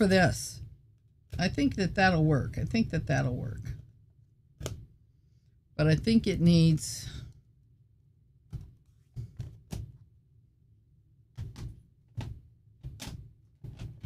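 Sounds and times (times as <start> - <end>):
knocks and thunks of objects moved: 8.4 - 10.1, 11.3 - 14.0.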